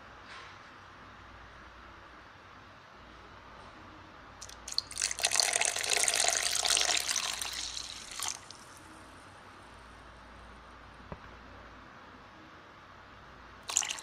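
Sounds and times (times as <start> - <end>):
water pouring into steel jar: 4.4 - 8.7, 13.7 - 14.0.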